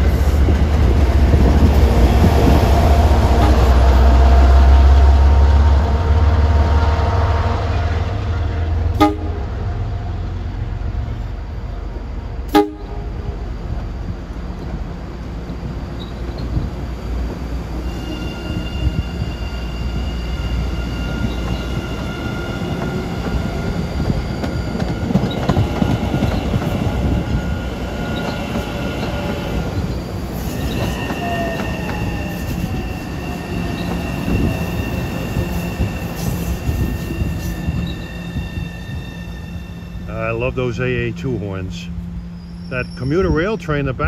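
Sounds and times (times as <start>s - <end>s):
distant commuter train: 0.0s - 44.0s
train wheels squealing: 15.8s - 16.8s, 17.7s - 40.2s, 42.0s - 43.6s.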